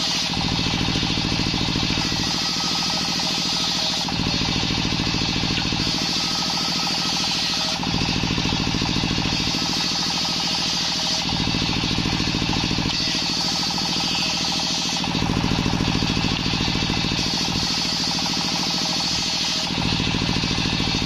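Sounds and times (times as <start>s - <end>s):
table saw ripping wood planks: 1.8s - 4.2s, 9.3s - 11.3s, 12.8s - 15.2s.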